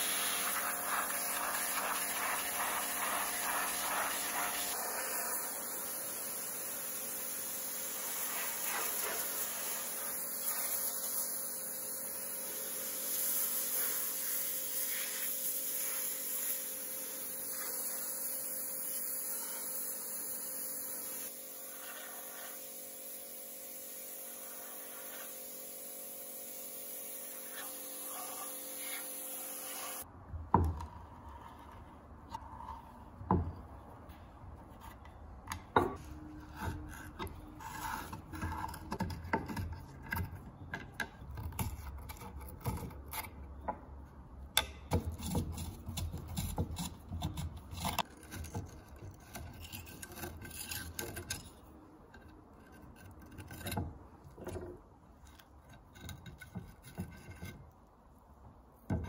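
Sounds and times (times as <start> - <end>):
pressure washer spraying: 0.0 - 30.0.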